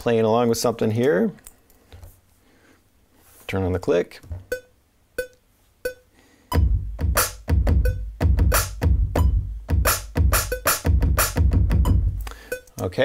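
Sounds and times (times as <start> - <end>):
electronic drum beat: 4.4 - 12.9
metronome clicking: 4.5 - 9.4, 10.0 - 13.0.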